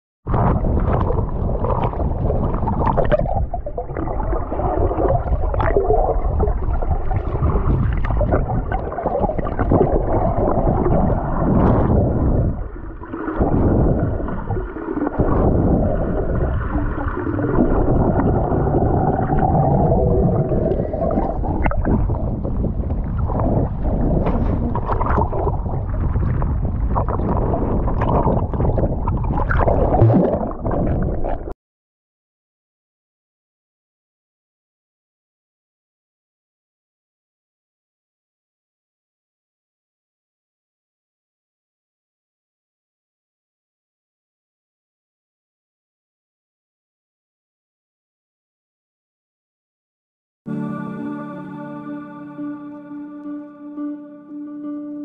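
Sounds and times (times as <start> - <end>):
splashes: 0.3 - 31.5
underwater rumble and gurgling: 0.3 - 31.6.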